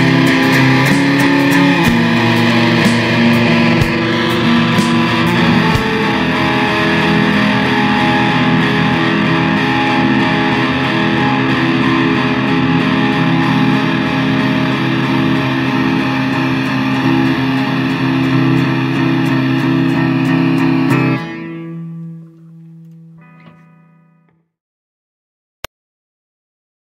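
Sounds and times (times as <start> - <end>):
rock music with distorted guitar: 0.0 - 24.3.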